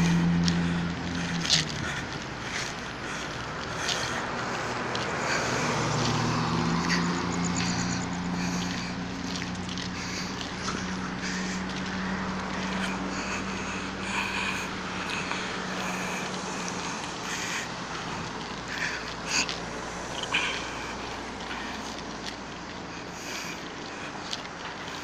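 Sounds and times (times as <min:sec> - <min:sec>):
low hum rising in pitch: 0:00.0 - 0:02.5
car engine and road noise: 0:00.0 - 0:25.0.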